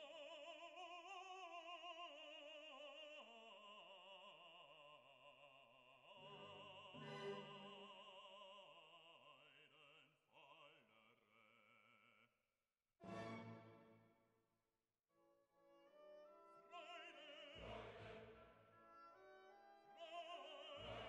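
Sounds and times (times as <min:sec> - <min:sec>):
faint operatic singing with orchestra: 0:00.0 - 0:11.8, 0:16.2 - 0:21.0.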